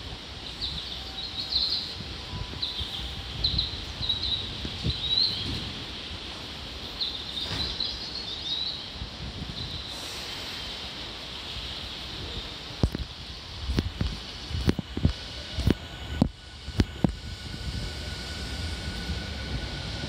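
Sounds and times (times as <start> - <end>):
steady low rumble: 12.2 - 20.0.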